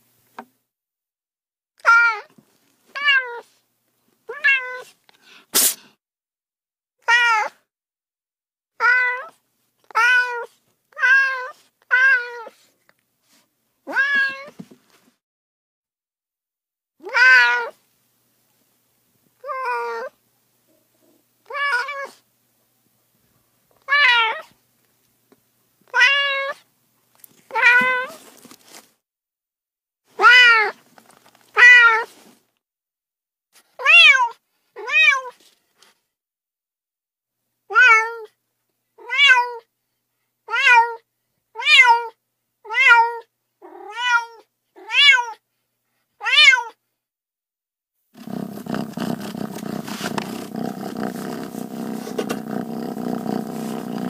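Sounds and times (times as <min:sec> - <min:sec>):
cat meowing: 0:04.3 - 0:04.9, 0:08.8 - 0:09.3, 0:09.9 - 0:12.5, 0:13.9 - 0:14.5, 0:17.0 - 0:17.8, 0:21.5 - 0:22.2, 0:25.9 - 0:26.6, 0:27.5 - 0:28.2, 0:30.2 - 0:30.8, 0:31.6 - 0:32.1, 0:37.7 - 0:38.3, 0:42.7 - 0:45.4.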